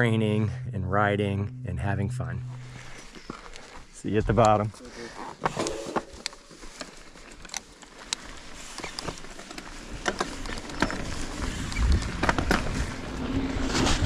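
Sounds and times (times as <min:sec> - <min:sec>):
wind rumble on microphone: 0:11.3 - 0:14.0.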